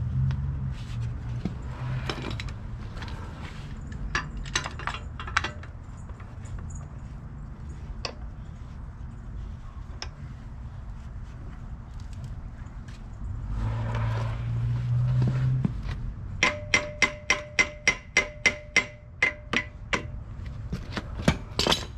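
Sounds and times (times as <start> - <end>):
low steady rumble: 0.0 - 21.9
pipe and clamp clicks and rattles: 3.9 - 6.8.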